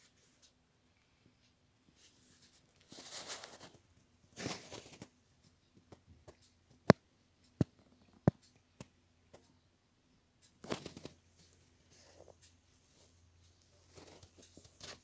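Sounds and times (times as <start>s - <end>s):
phone handling rustling scrapes: 4.4s - 5.1s.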